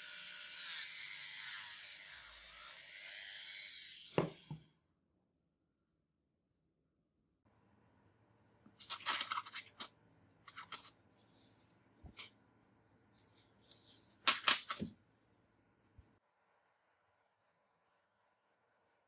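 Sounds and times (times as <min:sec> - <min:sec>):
sunglasses parts clicking and clattering: 0:08.8 - 0:09.9, 0:10.5 - 0:12.3, 0:13.2 - 0:14.9.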